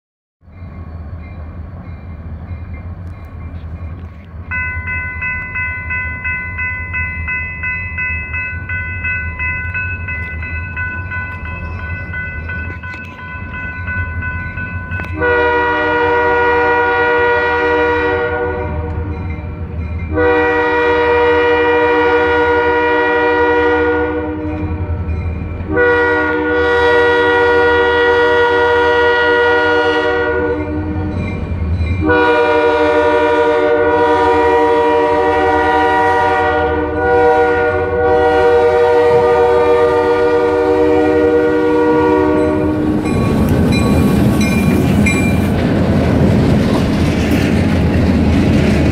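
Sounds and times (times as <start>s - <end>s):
crossing bell ringing: 0.4s - 28.0s, 28.7s - 35.5s, 36.4s - 45.9s
diesel locomotive engine rumble: 0.4s - 48.9s
locomotive air horn blasts: 15.0s - 19.2s, 20.1s - 25.1s, 25.7s - 31.2s, 32.0s - 43.1s.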